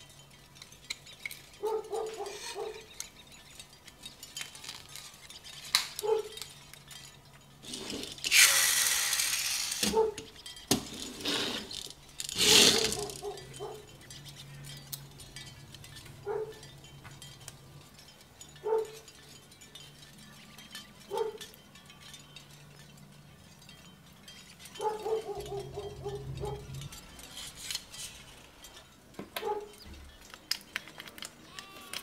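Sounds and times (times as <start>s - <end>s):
plastic parts clicking and tapping: 0.0s - 17.6s, 24.7s - 32.0s.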